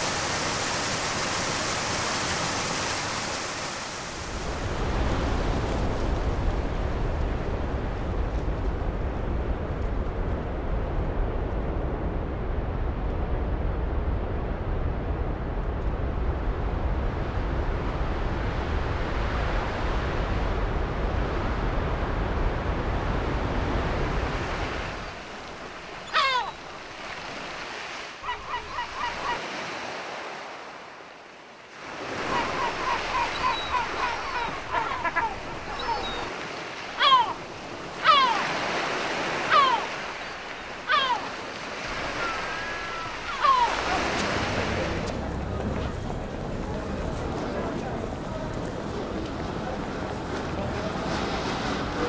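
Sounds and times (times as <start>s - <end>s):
steady rushing noise with rumble: 3.9s - 26.0s, 44.2s - 52.0s
high whistled bird calls: 32.3s - 34.9s.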